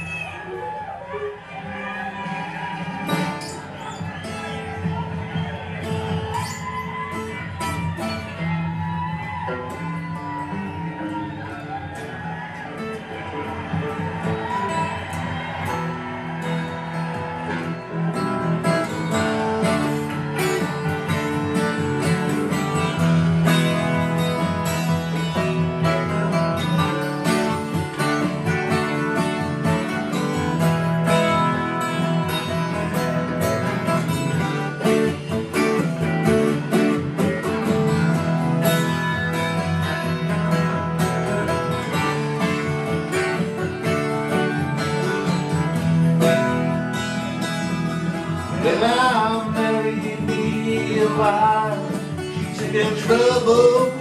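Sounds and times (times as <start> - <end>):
acoustic guitar strummed and picked: 0.0 - 54.0.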